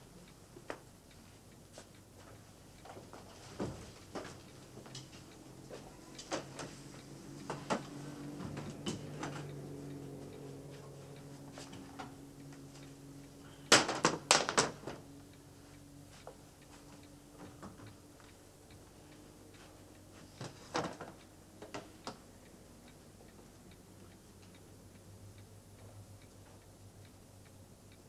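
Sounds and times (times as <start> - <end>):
faint low hum: 0.0 - 13.8.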